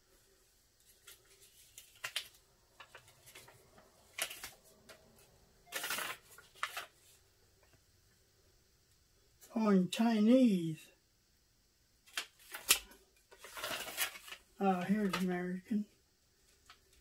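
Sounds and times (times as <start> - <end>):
paper crinkling and rustling: 0.8 - 7.8, 12.1 - 15.6.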